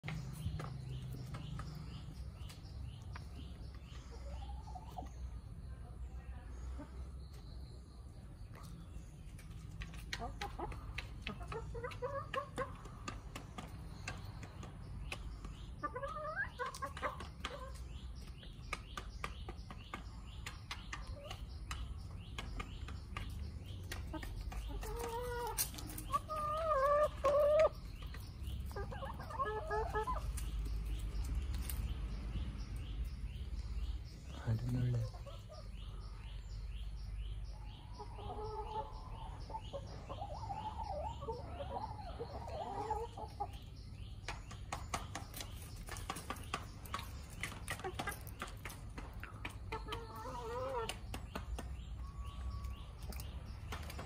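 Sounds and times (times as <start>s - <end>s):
small bird chirping: 0.0s - 54.0s
hens calling: 15.6s - 18.2s, 23.2s - 31.0s, 37.8s - 43.8s, 46.1s - 51.3s
beaks tapping: 16.6s - 29.3s, 44.1s - 54.0s.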